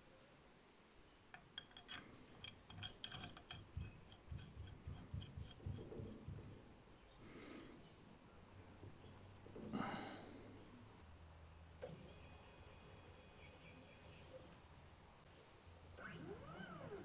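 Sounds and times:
small metallic clicks: 0:01.3 - 0:06.4
soft low knocks: 0:03.6 - 0:06.6.

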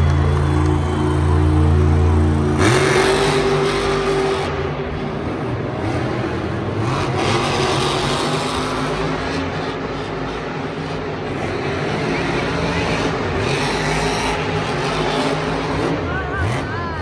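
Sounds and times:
steady low drone: 0:00.0 - 0:06.9
truck engine revving: 0:00.0 - 0:17.0.

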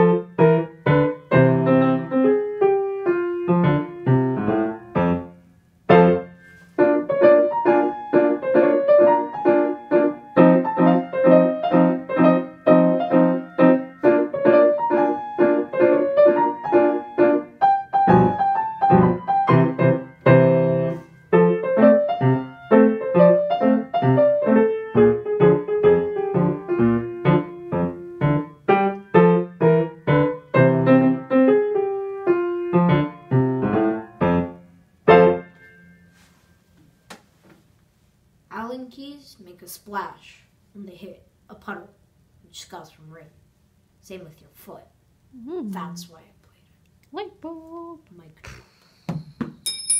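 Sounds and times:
solo grand piano: 0:00.0 - 0:36.2.

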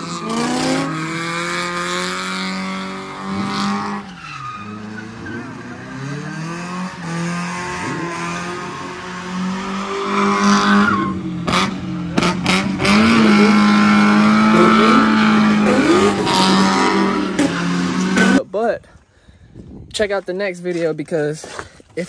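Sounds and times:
car engine at high revs: 0:00.0 - 0:18.4.

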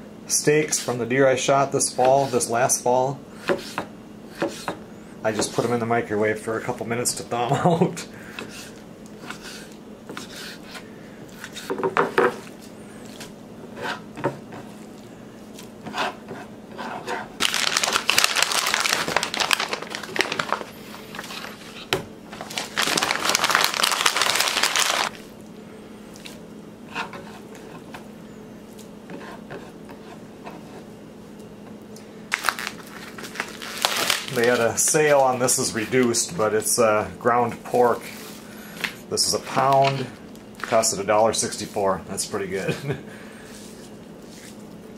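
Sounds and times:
crinkling: 0:17.4 - 0:25.2, 0:32.3 - 0:36.2.

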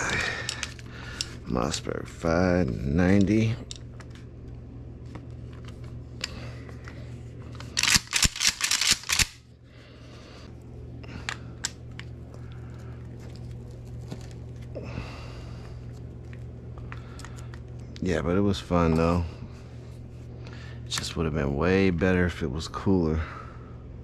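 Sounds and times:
steady low hum: 0:00.0 - 0:24.0
shotgun parts clicking: 0:00.3 - 0:01.3, 0:07.6 - 0:09.4.

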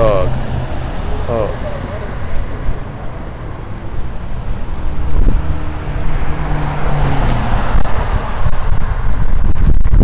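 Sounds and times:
car driving past: 0:00.0 - 0:09.1
wind noise on microphone: 0:02.2 - 0:10.0.

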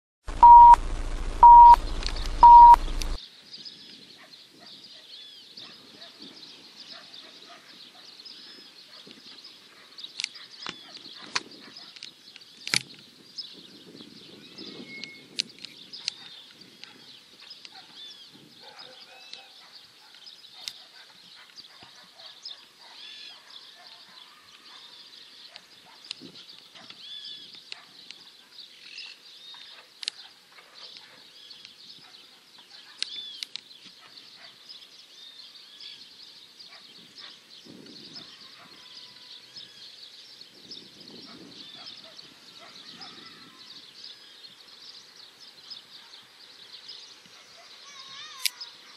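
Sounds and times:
sharp clicks: 0:00.3 - 0:03.2
small birds chirping: 0:00.3 - 0:48.9.

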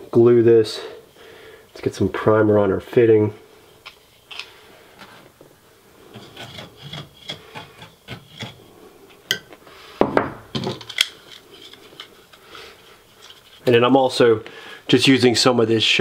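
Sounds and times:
dauber rubbing strokes: 0:06.0 - 0:09.1, 0:11.3 - 0:14.3
plastic parts clicking: 0:10.6 - 0:12.4.

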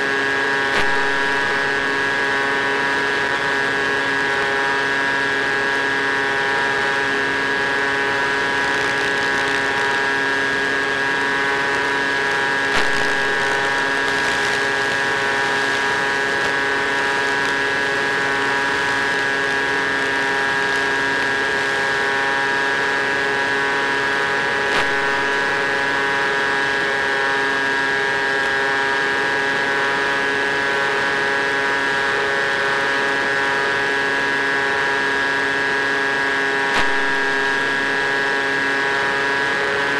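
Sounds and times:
electric motor and propeller humming: 0:00.0 - 0:39.9.

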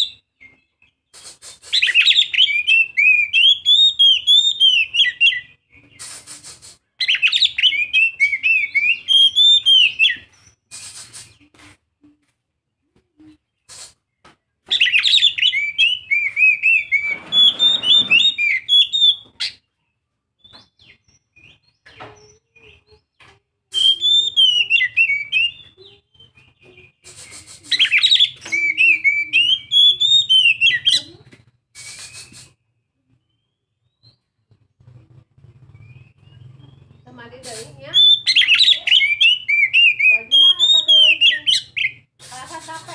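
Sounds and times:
bird singing whistled notes: 0:00.0 - 0:06.4, 0:07.0 - 0:11.5, 0:14.7 - 0:19.6, 0:23.7 - 0:34.5, 0:35.6 - 0:42.1.

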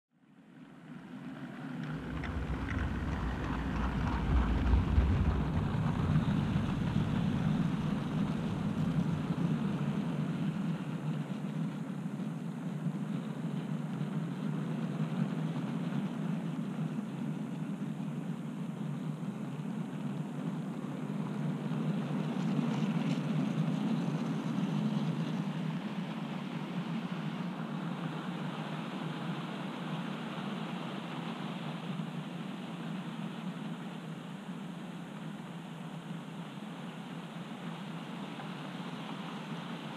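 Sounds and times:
model train wheels rumbling on rail: 0:01.2 - 0:11.1.

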